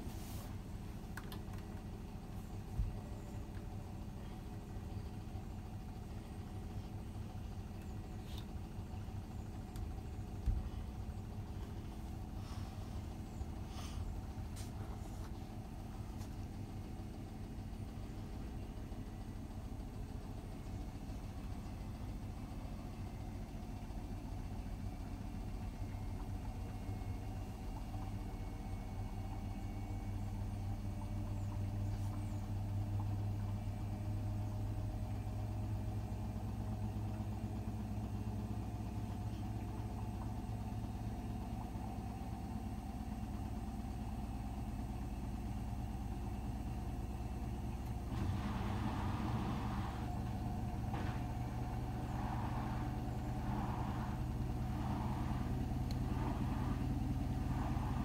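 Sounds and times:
washing machine humming: 0.0s - 58.0s.

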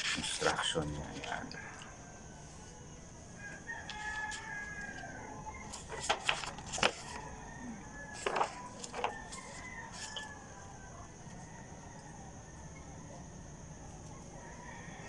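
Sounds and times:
paper sheets being flipped: 5.7s - 7.2s, 8.1s - 10.2s
paper crackling: 5.7s - 7.3s, 8.1s - 10.2s.

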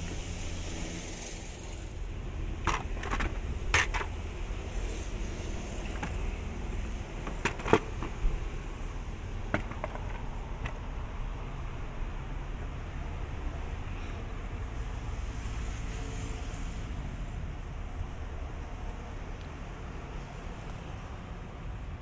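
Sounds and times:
plastic cover clicks and knocks: 7.2s - 8.2s, 9.5s - 10.8s.

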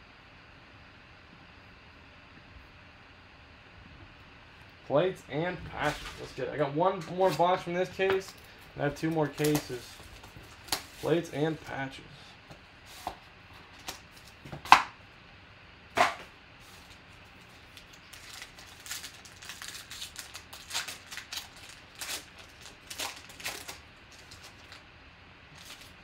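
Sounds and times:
cards sliding out crackling: 7.1s - 11.7s
foil wrapper tearing and crinkling: 9.0s - 11.2s, 16.7s - 24.9s, 25.5s - 26.0s.

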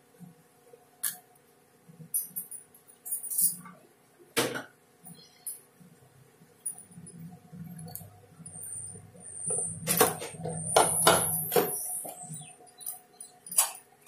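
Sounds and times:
low hum: 5.0s - 13.5s.

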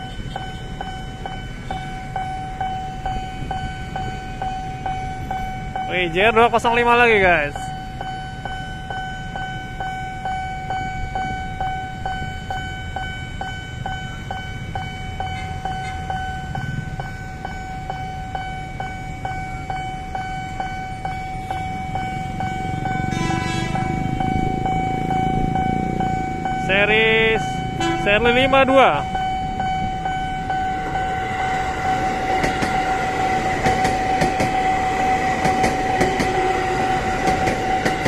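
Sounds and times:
level crossing warning bell: 0.0s - 38.0s
train rumbling: 0.0s - 38.0s
train horn: 23.0s - 24.1s, 27.8s - 28.3s, 31.4s - 38.0s.

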